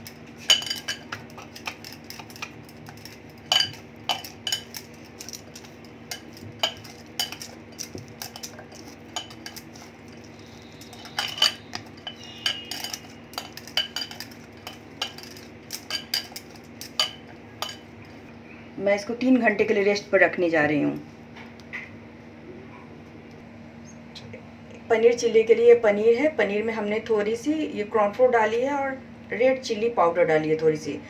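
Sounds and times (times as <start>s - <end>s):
glass bangles clinking: 0.5s - 5.4s, 6.1s - 17.8s.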